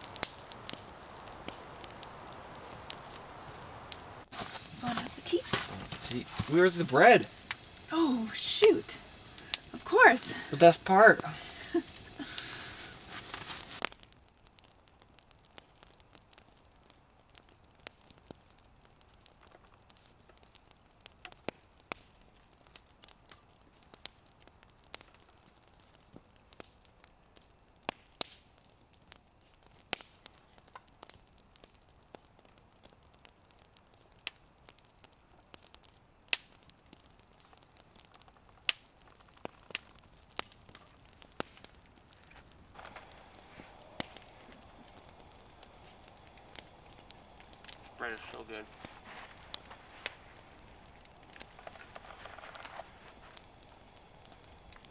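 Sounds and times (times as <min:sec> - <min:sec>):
crusty bread crackling: 0:00.0 - 0:54.9
short rustle: 0:04.3 - 0:07.9, 0:11.4 - 0:13.9, 0:48.0 - 0:50.8, 0:51.4 - 0:53.4.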